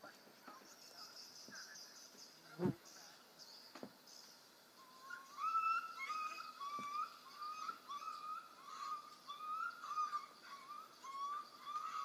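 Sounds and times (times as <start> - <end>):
puppy yelping: 5.1 - 12.0.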